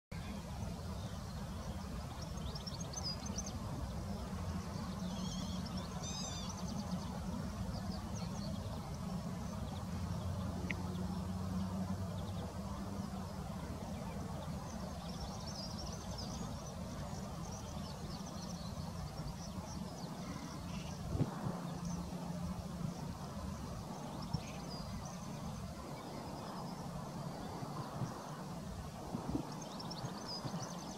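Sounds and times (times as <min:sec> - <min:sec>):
low outdoor rumble: 0:00.2 - 0:30.4
small birds chirping: 0:00.3 - 0:22.3.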